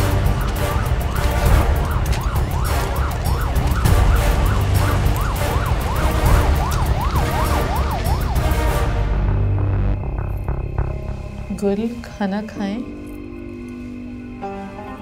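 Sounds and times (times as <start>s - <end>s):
police siren yelping: 0.0s - 9.2s
steady low rumble: 0.0s - 14.4s.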